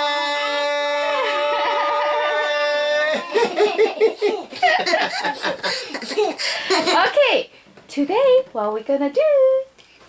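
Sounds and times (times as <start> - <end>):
children shouting: 0.0 - 3.6
children giggling and laughing: 3.1 - 7.2.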